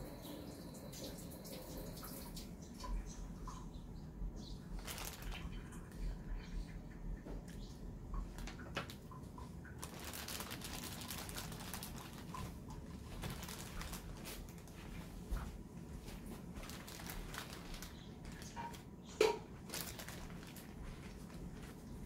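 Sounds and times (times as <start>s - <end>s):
food rustling and squishing: 4.6s - 6.7s, 7.4s - 22.0s.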